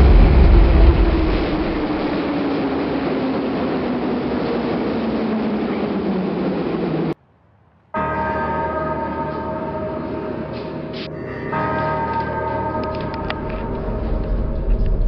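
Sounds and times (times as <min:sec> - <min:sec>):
heavy low rumble: 0:00.0 - 0:07.2, 0:09.2 - 0:15.0
train rail and wheel noise: 0:00.0 - 0:07.2, 0:08.0 - 0:15.0
whine falling in pitch: 0:00.0 - 0:07.2.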